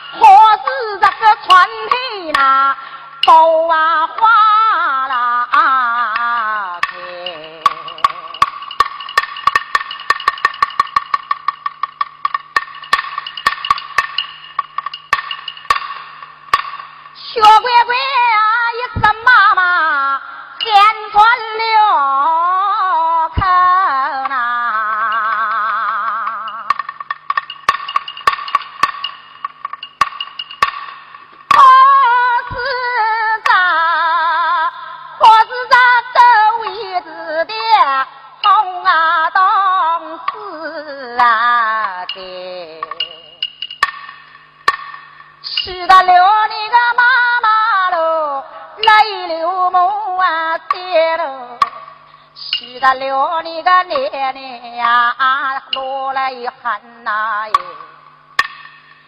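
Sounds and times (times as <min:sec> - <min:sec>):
person singing: 0:00.0 - 0:08.8, 0:31.5 - 0:43.4, 0:45.4 - 0:51.8, 0:52.4 - 0:58.0
sharp percussion clicks: 0:00.0 - 0:19.6, 0:20.6 - 0:21.4, 0:23.3 - 0:33.9, 0:35.2 - 0:48.0, 0:48.8 - 0:49.9, 0:50.5 - 0:59.0
sharp wooden clicks: 0:58.4 - 0:59.0.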